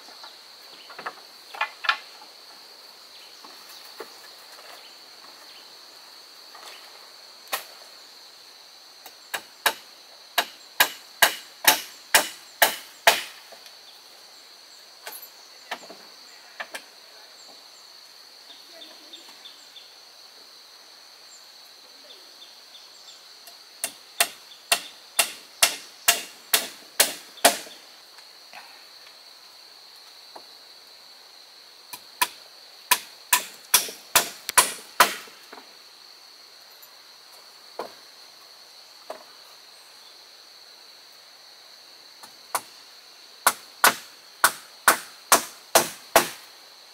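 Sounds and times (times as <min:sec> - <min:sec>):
hand tool striking wood: 0:09.3 - 0:09.8, 0:10.4 - 0:13.4, 0:23.8 - 0:27.8, 0:31.9 - 0:35.6, 0:43.4 - 0:46.4.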